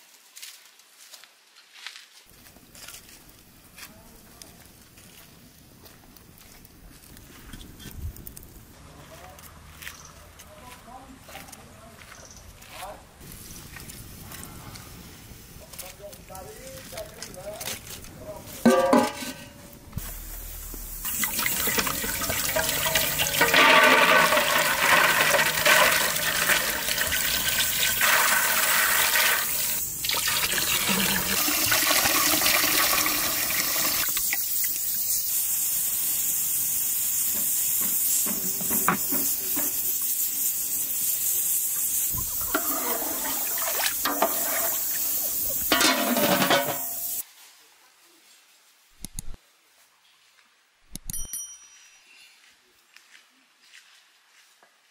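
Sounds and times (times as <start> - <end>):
water pouring into metal pot: 21.0 - 34.8, 41.9 - 47.2.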